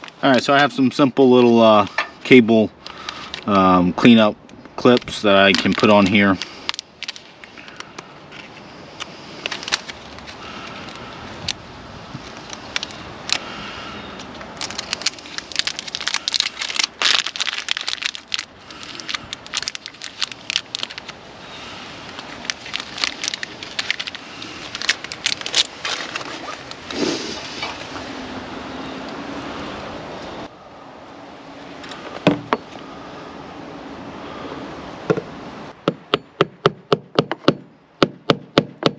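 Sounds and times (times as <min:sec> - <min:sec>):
power cable being handled: 0:14.2 - 0:21.2, 0:22.0 - 0:27.0.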